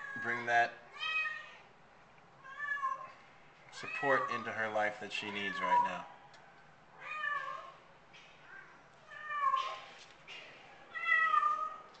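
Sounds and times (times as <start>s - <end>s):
cat meowing: 0.0s - 1.7s, 2.4s - 3.2s, 3.8s - 4.5s, 5.3s - 6.1s, 7.0s - 7.8s, 8.5s - 9.8s, 10.9s - 11.9s.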